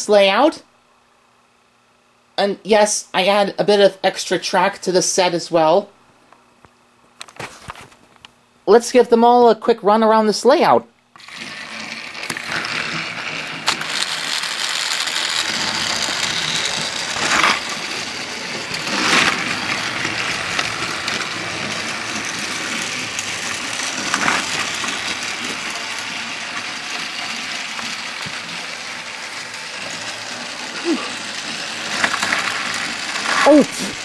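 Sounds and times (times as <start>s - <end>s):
toy train clacks: 11.2s - 34.0s
toy trains whirring on track: 11.2s - 34.0s.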